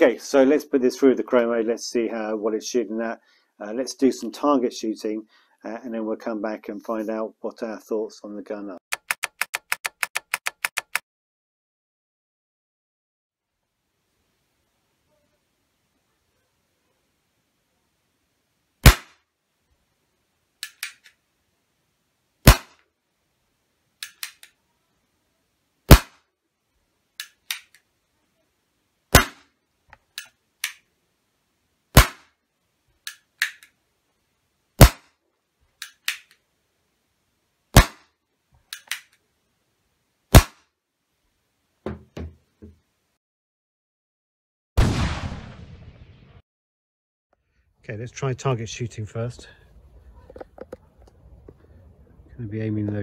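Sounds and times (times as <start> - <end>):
airsoft revolver shots: 18.8 - 19.2, 22.4 - 22.8, 25.9 - 26.2, 29.1 - 29.5, 31.9 - 32.3, 34.8 - 35.1, 37.7 - 38.0, 40.3 - 40.6
revolver hammer cocking clicks: 20.6 - 21.2, 24.0 - 24.5, 35.8 - 36.4, 38.7 - 39.2
handling thumps: 41.8 - 42.8.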